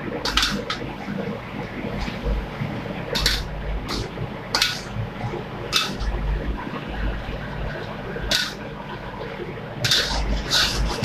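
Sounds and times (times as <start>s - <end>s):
metal ladle scraping a wok: 3.2s - 4.0s, 9.8s - 11.0s.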